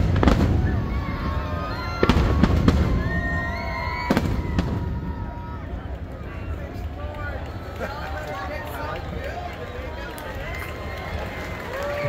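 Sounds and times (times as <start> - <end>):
fireworks bangs: 0.0 - 6.9.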